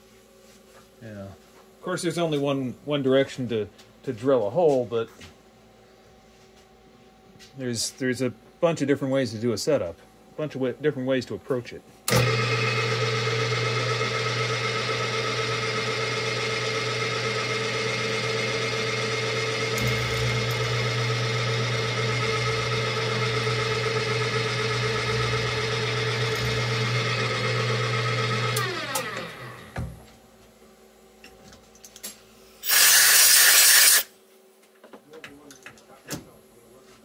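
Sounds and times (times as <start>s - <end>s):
end mill cutting aluminium: 12.1s - 29.7s, 32.6s - 34.1s
motor winding down: 12.1s - 29.8s, 32.6s - 34.1s
milling machine motor running: 12.1s - 29.9s.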